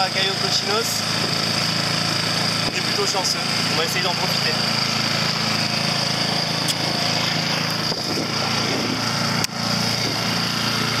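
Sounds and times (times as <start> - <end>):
outboard motor running: 0.0 - 11.0
sharp click: 6.6 - 6.8.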